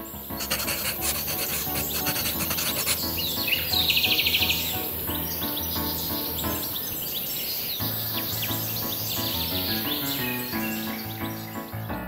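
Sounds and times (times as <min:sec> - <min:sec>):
soft background music: 0:00.0 - 0:07.0, 0:07.8 - 0:12.0
tool scratching pastel on paper: 0:00.4 - 0:03.3.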